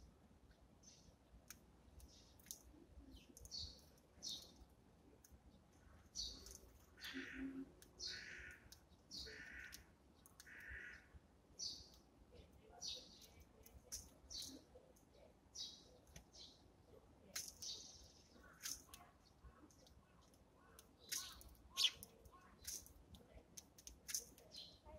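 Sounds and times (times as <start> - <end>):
sparrows chirping: 0.6 - 24.9
longer lower bird calls: 6.2 - 11.8, 20.6 - 22.0.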